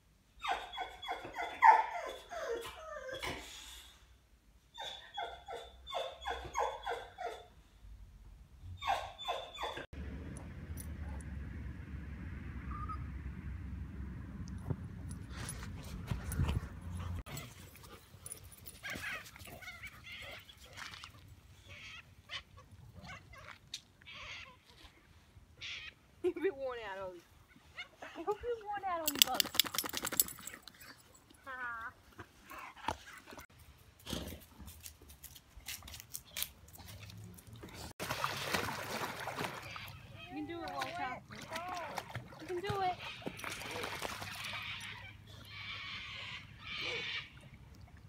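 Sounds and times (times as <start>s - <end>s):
dog whining: 0.4s - 3.5s, 8.8s - 9.9s.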